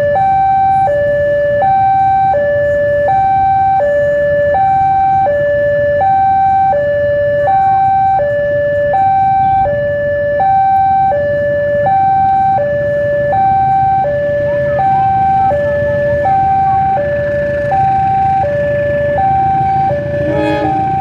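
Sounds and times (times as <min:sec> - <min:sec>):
two-tone warning alarm: 0:00.0 - 0:21.0
diesel locomotive rumble: 0:12.2 - 0:21.0.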